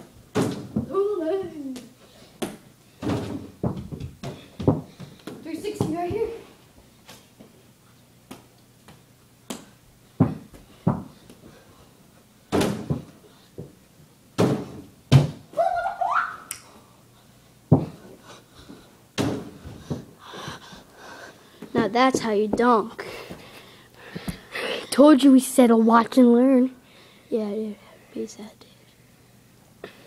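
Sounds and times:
feet landing: 0:01.8 - 0:06.4, 0:08.3 - 0:11.6, 0:12.5 - 0:13.7, 0:17.7 - 0:20.8
basketball bouncing: 0:10.2 - 0:11.2
hits on basketball hoop: 0:14.4 - 0:15.4.

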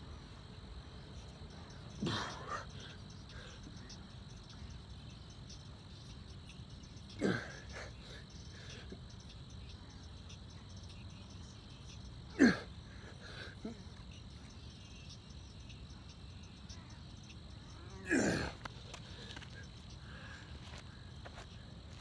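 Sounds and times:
crickets chirping: 0:00.0 - 0:22.0.

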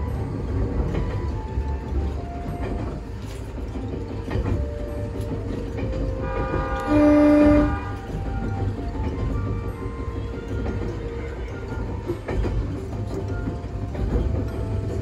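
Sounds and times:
electric train rumbling: 0:00.0 - 0:15.0
train horn blast: 0:06.0 - 0:08.6.

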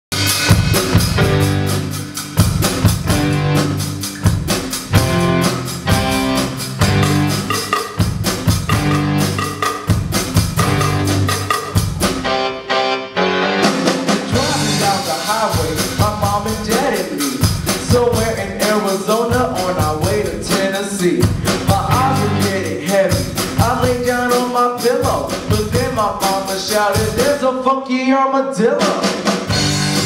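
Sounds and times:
cymbals: 0:00.1 - 0:12.4
low bass notes: 0:00.1 - 0:12.7, 0:14.3 - 0:16.7, 0:21.4 - 0:22.8, 0:29.5 - 0:30.0
drum kit beat: 0:00.1 - 0:12.8, 0:13.5 - 0:27.4, 0:28.8 - 0:30.0
electric guitar: 0:00.1 - 0:18.7, 0:21.2 - 0:27.1, 0:29.2 - 0:30.0.

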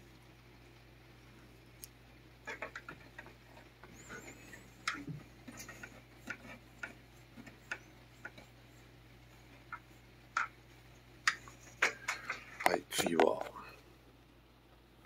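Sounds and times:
back scratcher scratching cat: 0:02.5 - 0:12.7.

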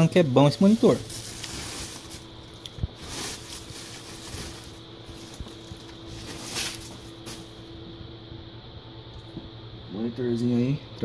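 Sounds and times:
plastic bag rustling: 0:00.0 - 0:07.7.

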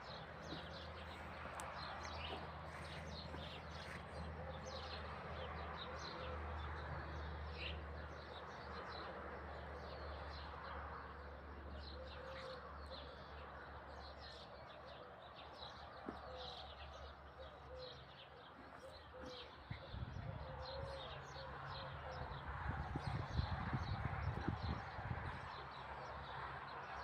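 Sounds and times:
small songbirds chirping: 0:00.0 - 0:27.0
dove cooing: 0:17.4 - 0:22.3.

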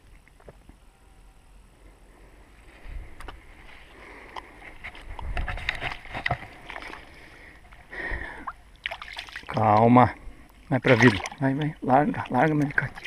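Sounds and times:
wind rumble on microphone: 0:04.8 - 0:06.4
footsteps splashing through water: 0:08.8 - 0:09.5, 0:10.8 - 0:13.0.

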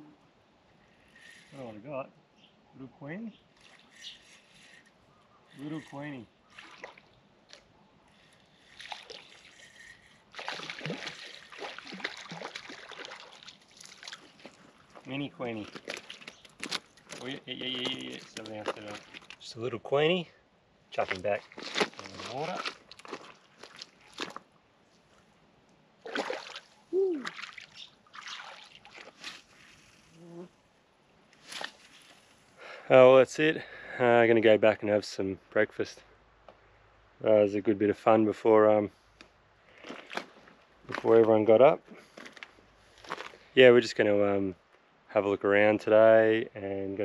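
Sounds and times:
shallow water splashing: 0:06.4 - 0:19.5, 0:21.1 - 0:24.6, 0:26.0 - 0:30.2
fish splashing at water surface: 0:08.6 - 0:14.6, 0:26.0 - 0:29.8.

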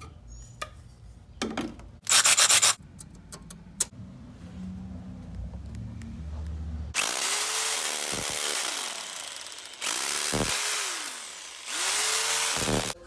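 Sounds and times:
power drill boring into concrete: 0:07.0 - 0:13.0.

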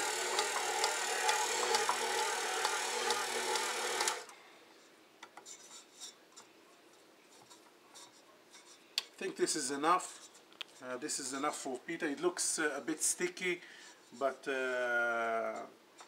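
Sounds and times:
stand mixer motor hum: 0:00.0 - 0:04.3.

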